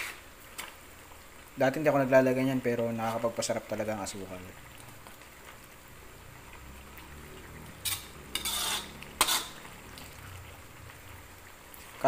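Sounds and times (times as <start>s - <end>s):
spoon scraping pan: 7.8s - 9.8s
metal spoon stirring in a pan: 7.8s - 10.6s.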